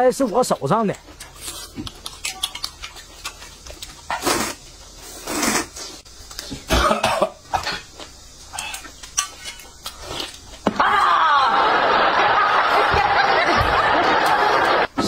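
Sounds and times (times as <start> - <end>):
wet chewing clicks: 0.2 - 6.5
noodles being slurped: 1.2 - 6.0.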